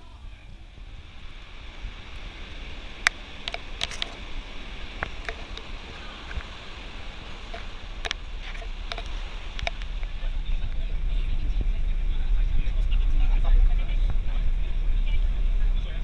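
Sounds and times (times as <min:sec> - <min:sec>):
low rumble and hiss: 0:00.0 - 0:16.0
sharp clicks and knocks: 0:03.0 - 0:04.2, 0:05.0 - 0:06.5, 0:07.5 - 0:09.9.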